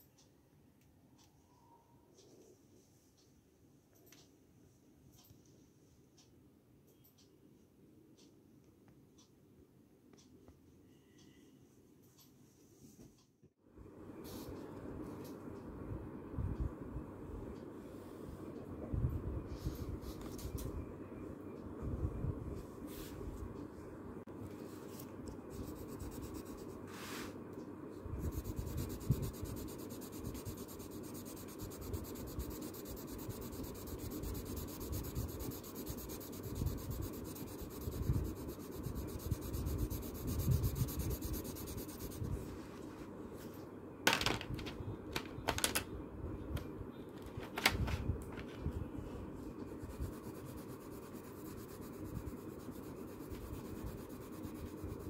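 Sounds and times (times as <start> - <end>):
pencil scratching on paper: 25.5 - 26.9, 28.2 - 42.3, 49.7 - 55.0.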